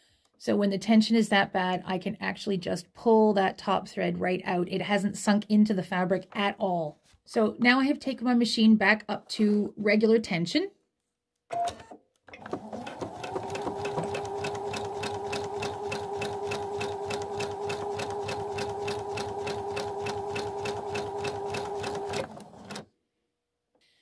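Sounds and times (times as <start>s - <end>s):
sewing machine motor running: 12.4s - 22.8s
needle ticking: 12.7s - 22.8s.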